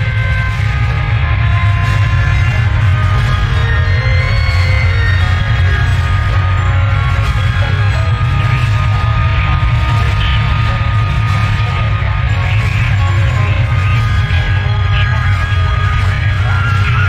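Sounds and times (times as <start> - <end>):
loud music with heavy bass: 0.0 - 17.0.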